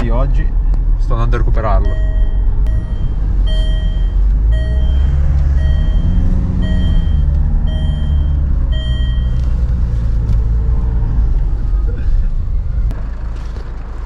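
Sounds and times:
car engine running: 0.0s - 14.0s
car warning chime beeping: 1.8s - 9.5s.

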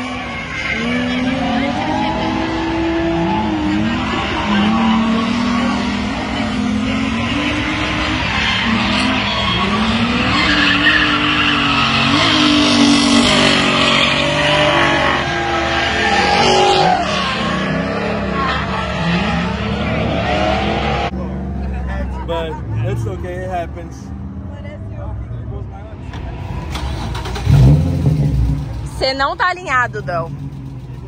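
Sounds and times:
tyres screeching: 0.0s - 21.1s, 26.0s - 31.0s
car engine revving: 0.0s - 31.0s.

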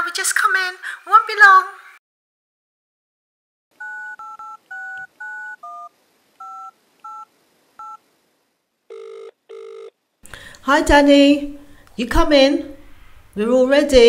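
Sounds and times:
phone keypad beeps: 3.8s - 8.0s
phone ringing tone buzzes: 3.8s - 8.0s, 8.9s - 10.0s.

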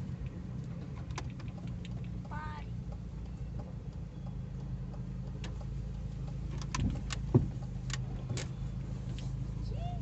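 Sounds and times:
sharp clicks and rattles: 0.0s - 8.6s
car cabin low hum: 0.0s - 10.0s.

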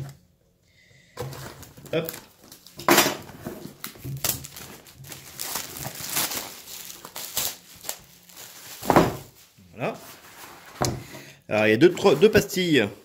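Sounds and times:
plastic bag and paper crinkling: 1.2s - 10.8s, 11.6s - 13.0s
cardboard packaging sliding and rustling: 4.5s - 10.9s, 11.7s - 13.0s.

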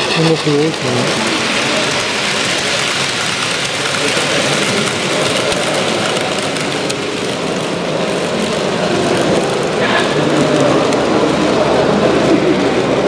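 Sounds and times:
busy hall noise: 0.0s - 13.0s
model train wheels rumbling: 0.0s - 13.0s.

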